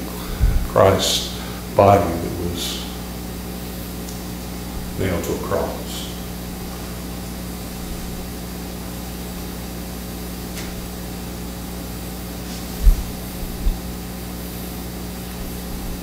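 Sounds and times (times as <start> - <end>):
electrical hum and hiss: 0.0 - 16.0
dull low thumps: 0.3 - 0.8, 12.7 - 14.2.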